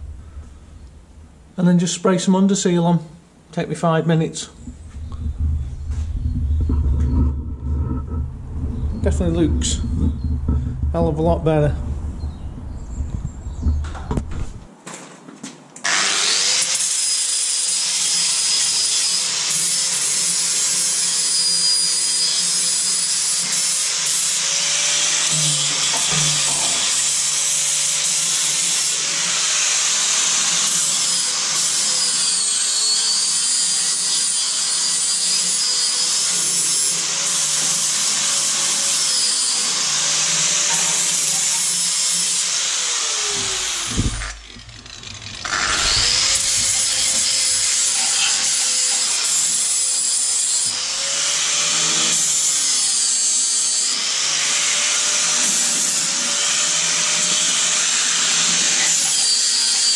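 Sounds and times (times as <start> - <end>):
angle grinder grinding steel: 15.9 - 59.9.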